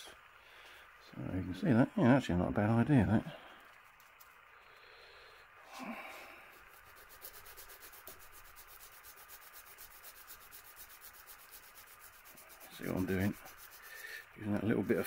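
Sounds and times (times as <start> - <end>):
emery cloth abrasive strokes: 5.7 - 15.0.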